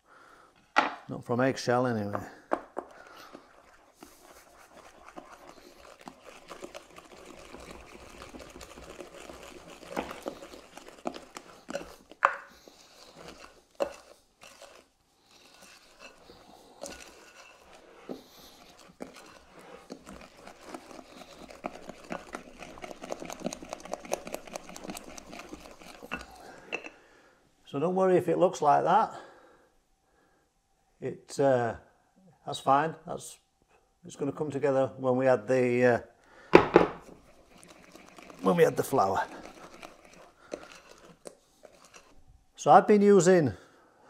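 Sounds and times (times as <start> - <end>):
spoon stirring wet batter: 1.4 - 27.2, 36.5 - 43.7.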